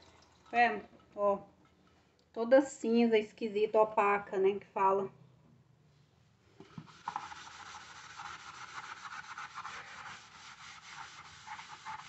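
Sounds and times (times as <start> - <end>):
sponge scrubbing metal lid: 6.7 - 12.0.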